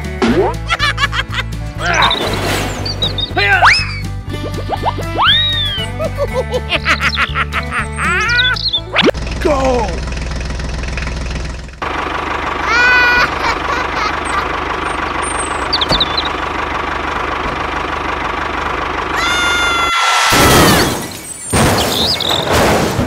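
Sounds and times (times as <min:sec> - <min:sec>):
sliding whistle-like tones: 0:02.0 - 0:05.9
tractor engine idling: 0:02.8 - 0:20.0.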